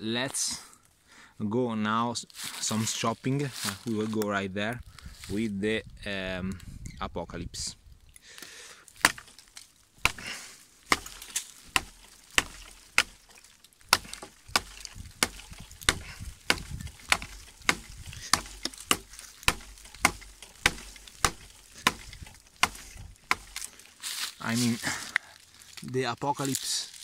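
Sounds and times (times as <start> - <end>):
knife chopping into log: 9.0 - 9.4, 10.0 - 23.7.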